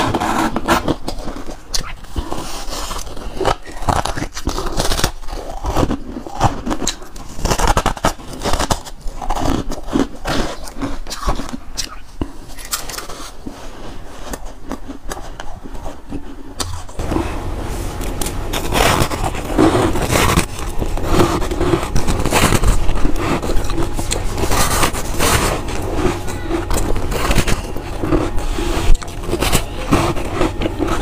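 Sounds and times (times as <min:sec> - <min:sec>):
crunchy chewing of ice: 0:00.0 - 0:31.0.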